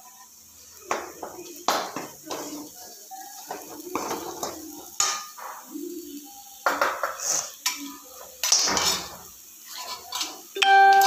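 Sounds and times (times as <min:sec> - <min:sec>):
spoon knocking against pan: 0:06.6 - 0:07.2
spoon scraping dough in metal pan: 0:06.8 - 0:10.5.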